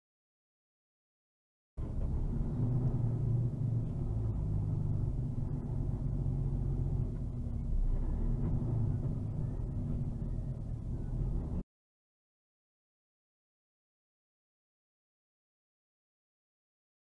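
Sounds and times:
vehicle engine and road noise: 0:01.8 - 0:11.6.

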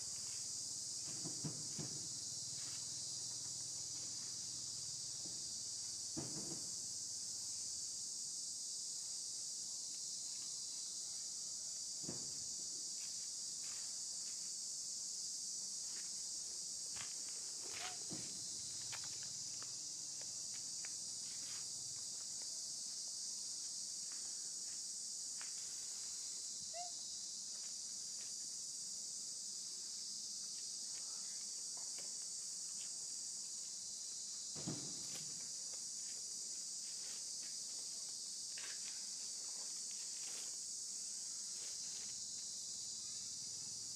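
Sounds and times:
high-pitched insect chorus: 0:00.0 - 0:43.9.

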